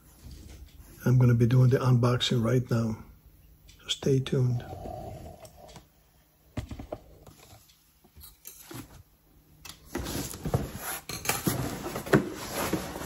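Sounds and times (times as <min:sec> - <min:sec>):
cardboard scraping and rustling: 0:09.9 - 0:13.0.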